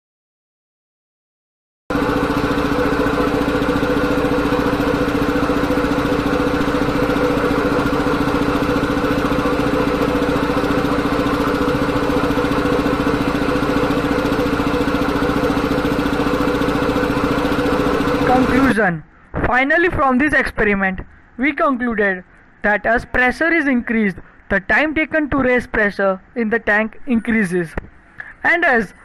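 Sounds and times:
air compressor running: 1.9s - 18.8s.

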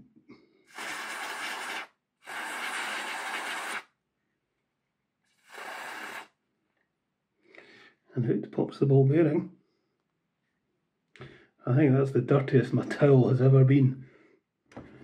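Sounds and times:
aerosol spray hissing: 0.7s - 3.9s, 5.4s - 6.4s.

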